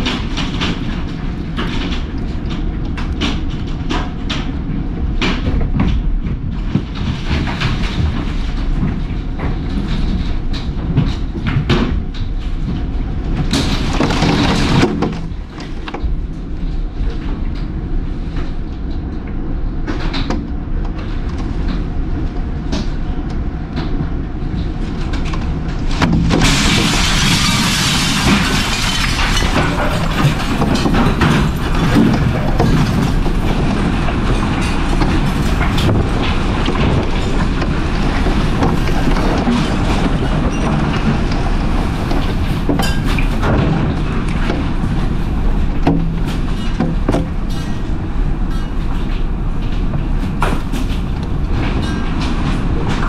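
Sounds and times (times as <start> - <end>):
tornado wind rushing: 0.0 - 53.0
debris knocking on walls: 25.6 - 53.0.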